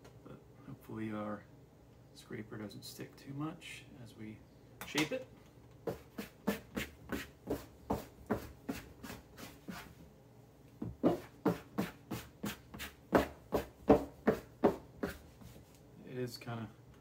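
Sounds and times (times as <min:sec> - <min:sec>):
dough scraper scraping board: 0:05.9 - 0:10.0, 0:11.0 - 0:15.5.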